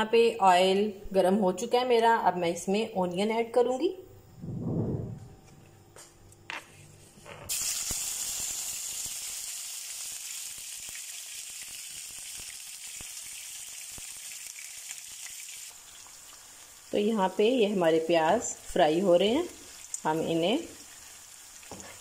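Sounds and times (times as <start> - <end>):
onions sizzling in oil: 7.5 - 22.0.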